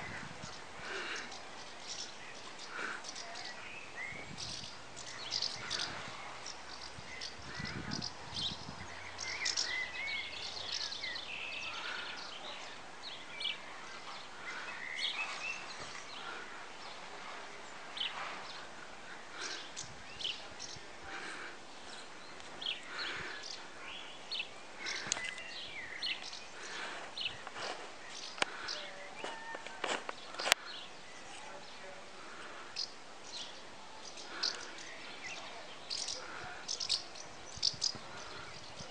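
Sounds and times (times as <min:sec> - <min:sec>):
outdoor background hiss: 0:00.0 - 0:38.9
small birds chirping: 0:00.0 - 0:38.9.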